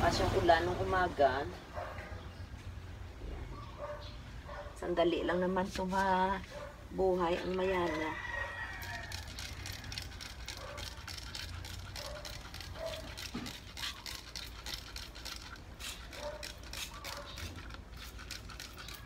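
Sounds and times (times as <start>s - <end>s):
spray bottle squirting water: 8.6s - 19.0s.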